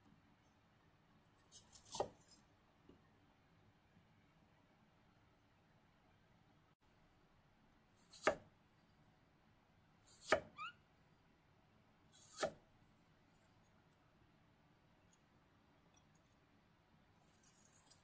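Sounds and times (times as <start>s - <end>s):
knife cutting on plastic board: 12.1s - 12.6s
knife scrape: 17.2s - 18.0s.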